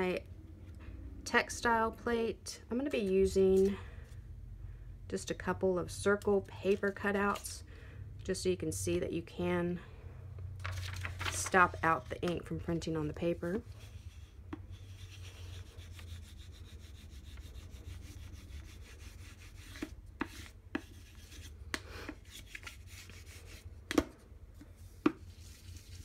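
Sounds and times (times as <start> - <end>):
wooden spoon rubbing on paper: 13.3 - 21.6.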